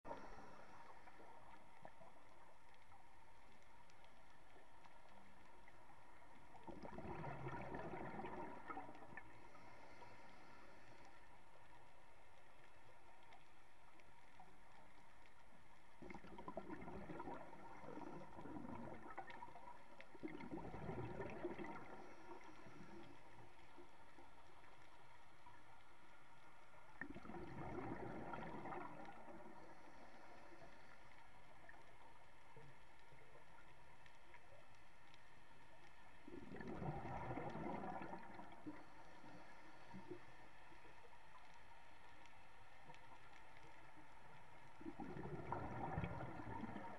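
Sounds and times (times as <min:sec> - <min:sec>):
steady underwater hiss: 0:00.1 - 0:46.9
bubbles gurgling underwater: 0:06.5 - 0:09.5, 0:16.0 - 0:23.2, 0:27.0 - 0:29.6, 0:36.2 - 0:38.8, 0:44.8 - 0:46.9.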